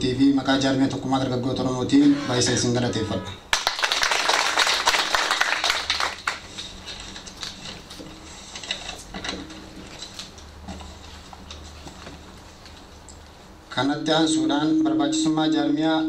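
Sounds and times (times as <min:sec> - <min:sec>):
audience applause: 0:03.5 - 0:06.5.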